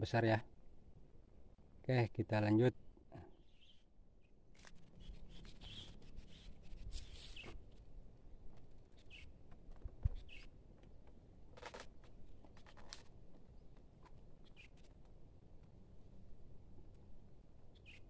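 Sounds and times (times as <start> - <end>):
faint bird chirps: 3.1 - 7.6, 8.9 - 9.4, 10.1 - 10.5, 14.4 - 14.9, 17.7 - 18.0.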